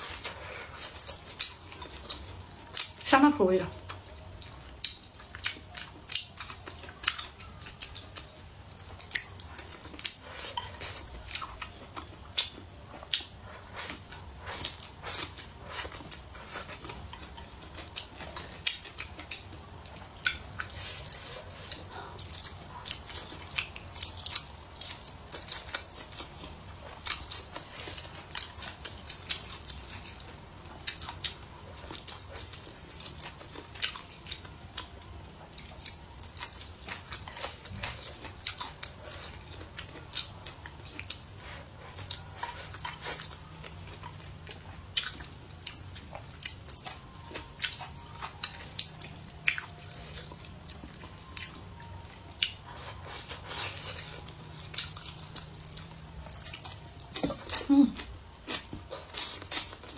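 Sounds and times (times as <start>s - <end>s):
person chewing food: 0.0s - 3.0s, 3.7s - 59.9s.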